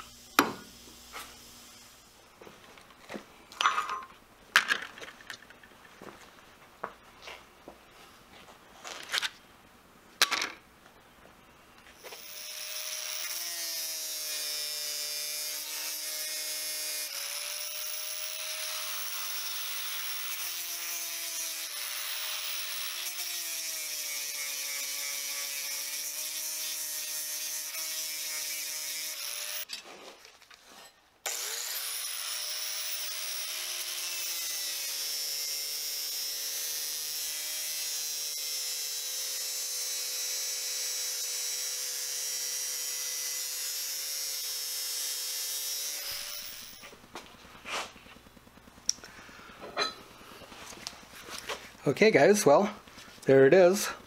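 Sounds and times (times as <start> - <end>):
angle grinder cutting steel: 12.0 - 29.7, 31.2 - 47.0.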